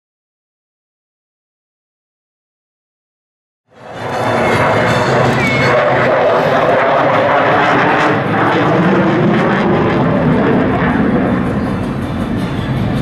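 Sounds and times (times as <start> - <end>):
jet roar overhead: 3.7 - 13.0.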